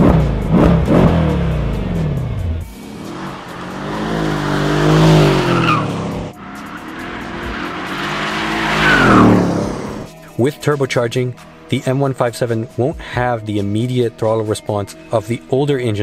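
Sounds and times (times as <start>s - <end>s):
another engine: 0.0s - 10.1s
car engine revving: 0.0s - 10.1s
exhaust crackles: 2.6s - 10.1s
tyre squeal: 3.3s - 10.1s.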